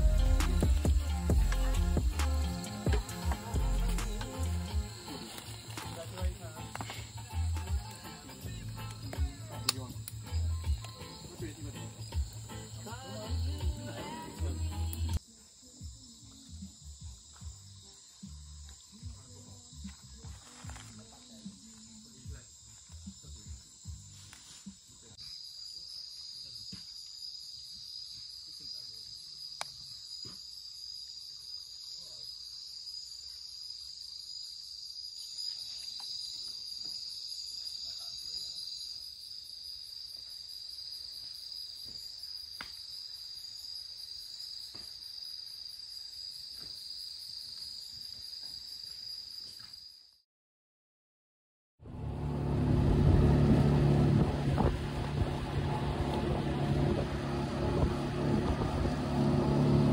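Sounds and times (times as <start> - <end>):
insects trilling: 0.0 - 50.2
motorboat engine running: 51.8 - 59.9.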